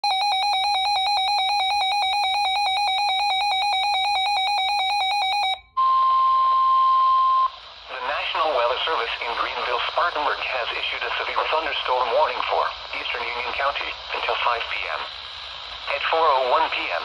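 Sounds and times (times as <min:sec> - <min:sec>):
rapid alarm beeping: 0:00.0 - 0:07.5
radio hiss: 0:07.4 - 0:17.0.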